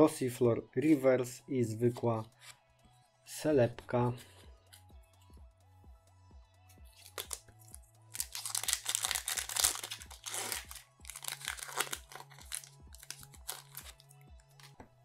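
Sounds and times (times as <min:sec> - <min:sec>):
foil wrapper crinkling and tearing: 0:07.0 - 0:07.4, 0:08.1 - 0:14.0.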